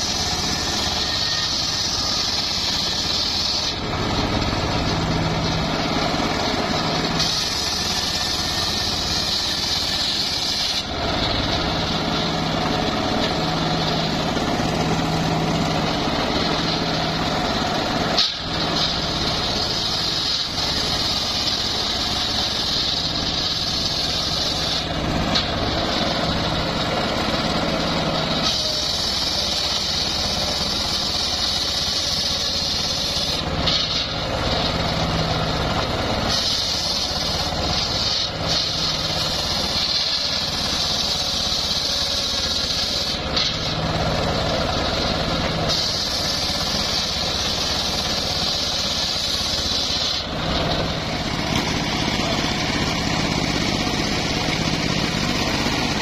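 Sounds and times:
circular saw blade whining through wood: 0:00.0 - 0:56.0
drive engine droning: 0:00.0 - 0:56.0.

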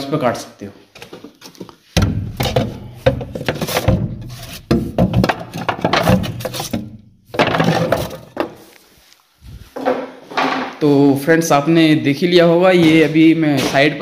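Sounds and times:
handling knocks: 0:02.0 - 0:08.6
microphone rubbing on shirt: 0:08.8 - 0:09.8.

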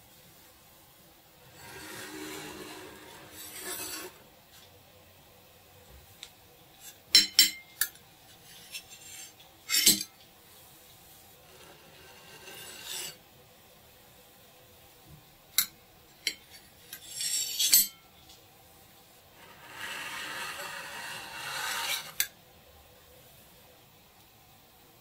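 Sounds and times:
utensils clinking on dishes: 0:09.7 - 0:10.1.

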